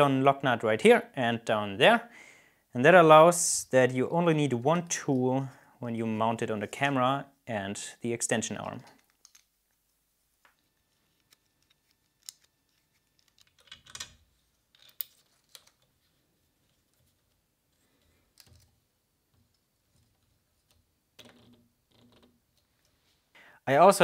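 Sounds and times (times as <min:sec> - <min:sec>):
plastic parts clicking: 0:08.6 - 0:09.8, 0:10.5 - 0:15.9, 0:18.0 - 0:23.0.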